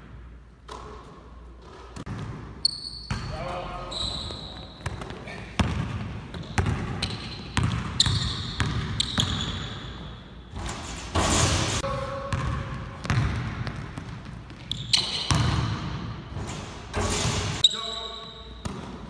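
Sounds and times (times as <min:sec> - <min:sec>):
basketball bouncing on hardwood: 0:04.8 - 0:06.9, 0:12.3 - 0:14.2.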